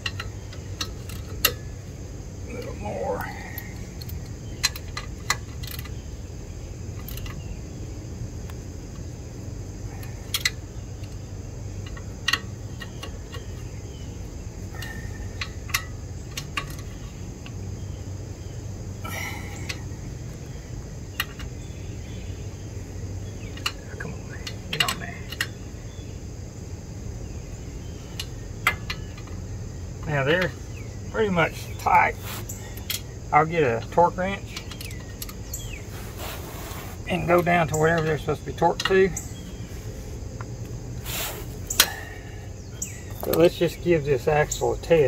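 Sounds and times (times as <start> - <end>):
socket ratchet clicking: 3.8 - 6.0, 14.7 - 17.6, 41.6 - 42.0.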